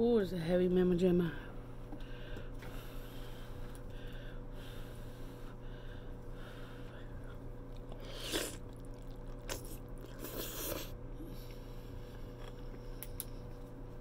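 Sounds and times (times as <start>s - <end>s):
faint steady hum: 0.0s - 14.0s
chewing and smacking: 7.2s - 13.8s
wet bite: 7.7s - 11.0s.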